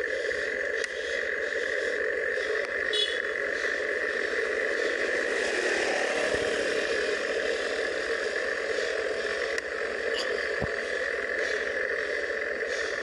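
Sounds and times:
bike tyre noise: 0.0s - 13.0s.

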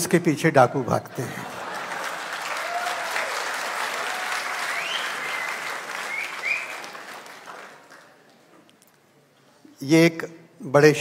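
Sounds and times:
audience applauding: 1.5s - 8.6s.

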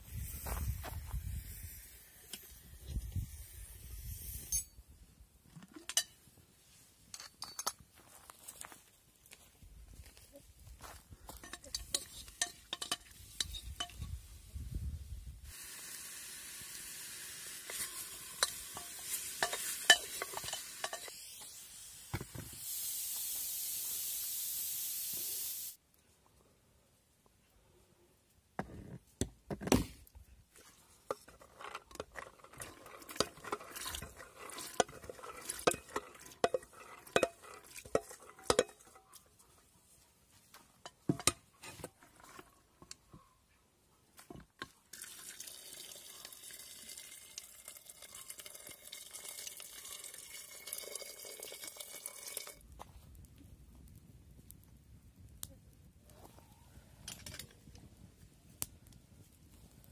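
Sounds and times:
hiss with crackles: 0.0s - 4.8s, 11.8s - 25.8s
wooden spoon scraping metal pot: 11.4s - 14.0s, 17.6s - 21.1s, 30.6s - 39.3s, 40.8s - 42.6s.

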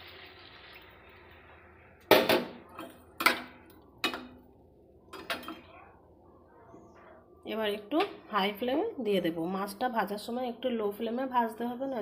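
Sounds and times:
water sizzling in hot oil: 0.0s - 1.6s
metal kitchenware clanking: 2.1s - 4.4s, 5.1s - 5.8s.

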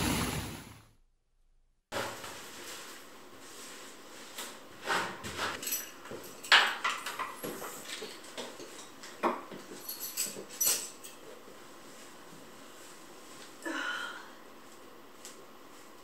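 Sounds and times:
keys and lock clinking: 9.8s - 11.2s.

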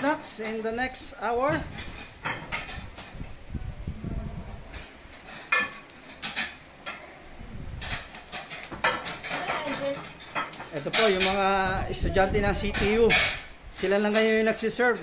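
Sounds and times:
ceramic plates clinking: 7.8s - 11.6s.

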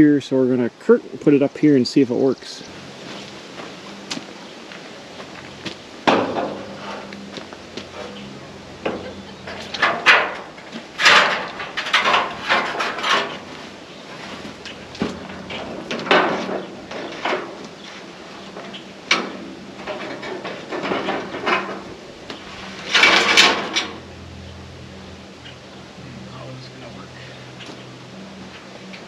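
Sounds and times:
sheet metal scraping and rattling: 6.0s - 24.2s.

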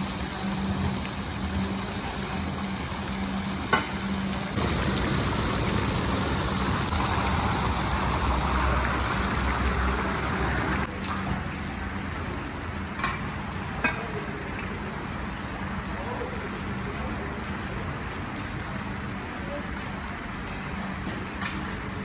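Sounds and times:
low hum: 4.6s - 10.9s.

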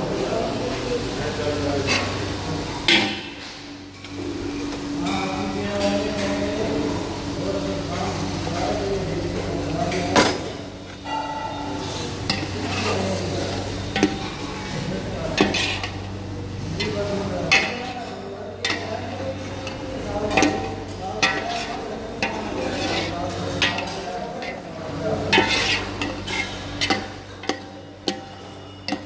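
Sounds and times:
metal spoon scraping pot: 15.4s - 16.0s, 21.2s - 24.6s, 25.2s - 29.0s
spoon clinking against pot: 25.3s - 29.0s.

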